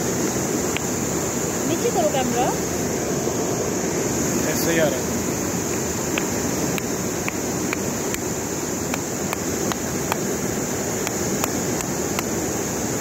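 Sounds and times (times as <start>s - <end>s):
high-pitched hiss: 0.0s - 13.0s
stream water rushing: 0.0s - 13.0s
faint ticks: 6.1s - 8.3s.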